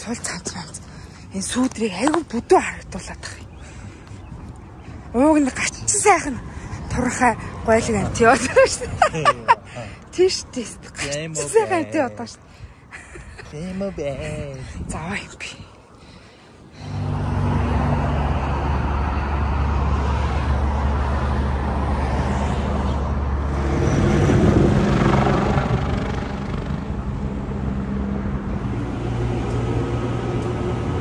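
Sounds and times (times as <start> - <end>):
wheel and rail rumble: 16.0 - 31.0.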